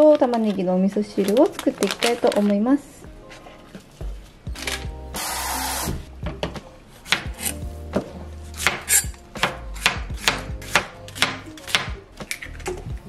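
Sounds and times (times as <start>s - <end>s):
knife chopping on cutting board: 5.8s - 12.0s.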